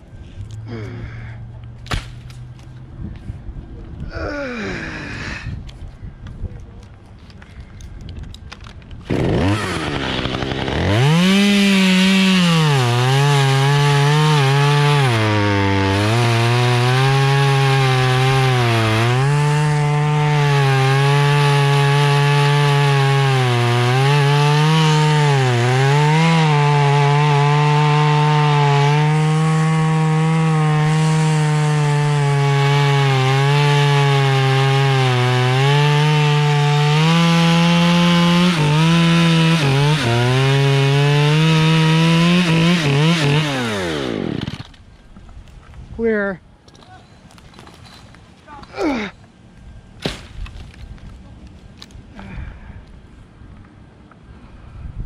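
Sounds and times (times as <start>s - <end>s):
chainsaw cutting wood: 8.6s - 44.9s, 50.0s - 50.9s.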